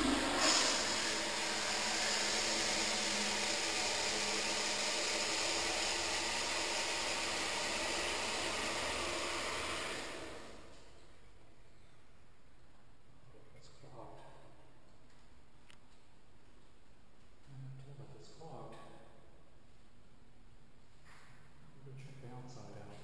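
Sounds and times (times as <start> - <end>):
toilet flushing: 0.0 - 10.9.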